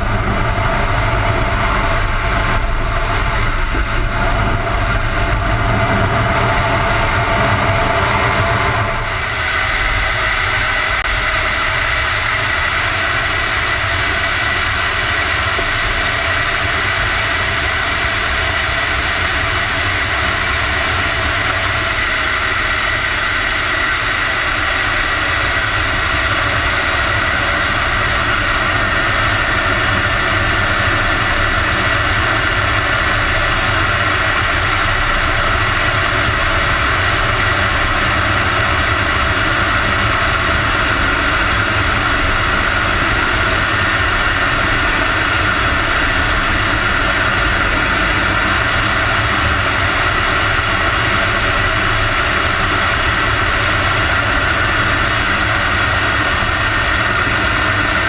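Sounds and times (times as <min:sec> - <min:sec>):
rush of air: 0:00.0 - 0:16.5
model jet turbine whine: 0:00.0 - 0:58.0.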